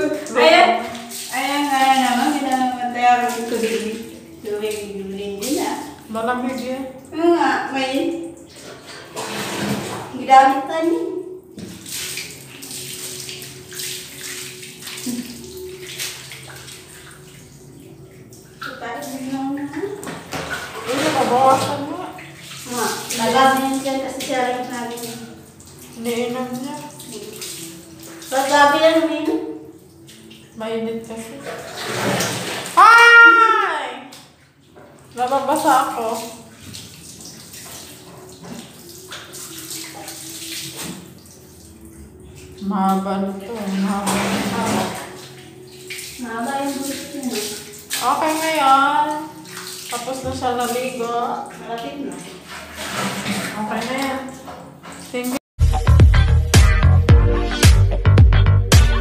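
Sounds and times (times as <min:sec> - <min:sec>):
water splashing over a dog: 0:00.0 - 0:05.9, 0:08.5 - 0:10.6, 0:18.6 - 0:30.3, 0:31.1 - 0:32.9, 0:35.1 - 0:41.5, 0:42.5 - 0:55.4.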